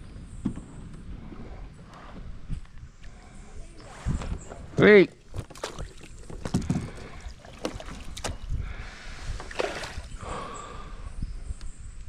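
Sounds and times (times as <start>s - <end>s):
water splashing: 5.3s - 8.4s, 9.4s - 10.2s.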